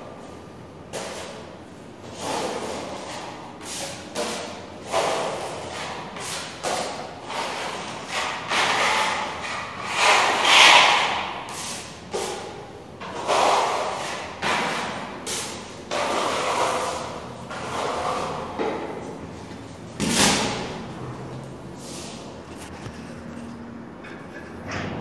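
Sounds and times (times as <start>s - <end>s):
putty knife scraping wall: 2.0s - 19.1s.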